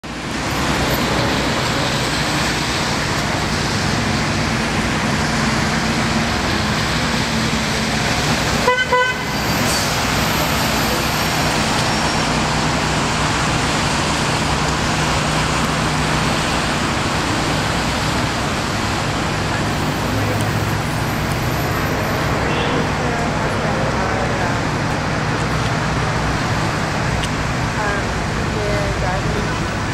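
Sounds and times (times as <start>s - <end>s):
road traffic: 0.0s - 29.9s
car horn toot: 8.6s - 9.4s.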